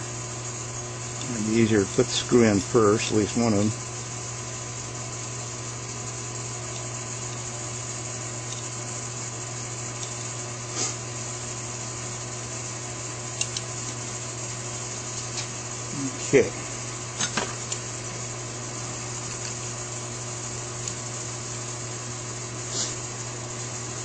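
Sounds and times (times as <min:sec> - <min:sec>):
hiss: 0:10.7 - 0:11.0, 0:22.6 - 0:23.1
light clicks of small screws: 0:13.4 - 0:13.7.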